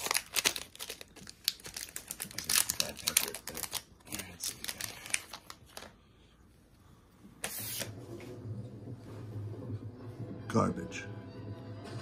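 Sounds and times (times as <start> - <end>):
plastic wrapper crinkling: 0.0 - 6.0
cards sliding: 7.4 - 8.0.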